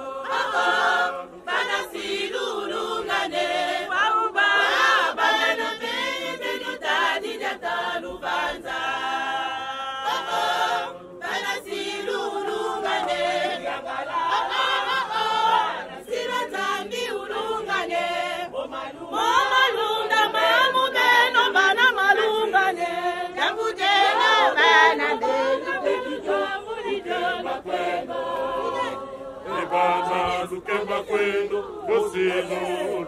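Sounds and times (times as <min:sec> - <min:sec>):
women singing a hymn: 0:00.0 - 0:33.0.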